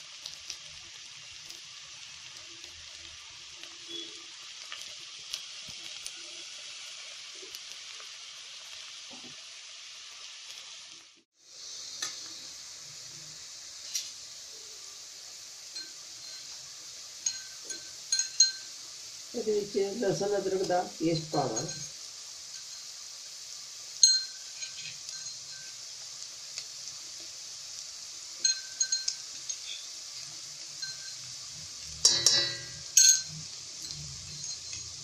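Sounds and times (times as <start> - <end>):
onions sizzling in oil: 0.0 - 35.0
sharp ringing clinks: 24.0 - 25.8, 32.0 - 35.0.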